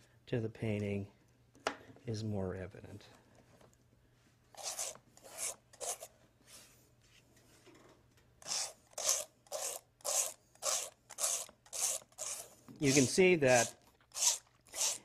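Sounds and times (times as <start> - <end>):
paintbrush rasping on canvas: 4.6 - 6.1, 8.4 - 15.0.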